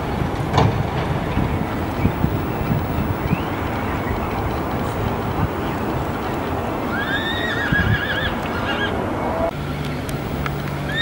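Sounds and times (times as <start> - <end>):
steady background noise: 0.0 - 11.0
horse whinnying: 6.9 - 9.0.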